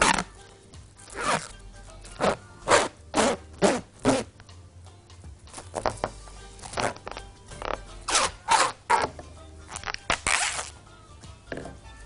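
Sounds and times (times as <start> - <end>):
cling film ripping off roll: 9.7 - 10.8.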